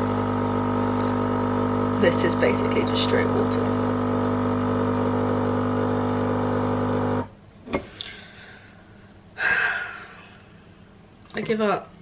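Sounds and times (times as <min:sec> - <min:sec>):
coffee machine pump humming: 0:00.0 - 0:07.9.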